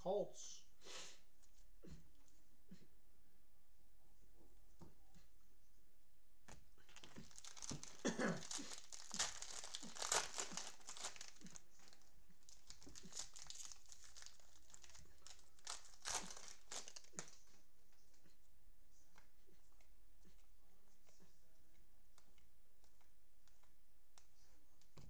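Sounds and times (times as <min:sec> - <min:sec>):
cellophane wrapper crinkling: 0:06.8 - 0:17.6.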